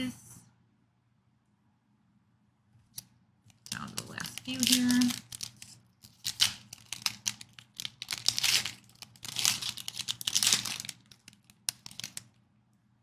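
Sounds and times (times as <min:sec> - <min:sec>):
foil wrapper crinkling: 0:03.5 - 0:12.4.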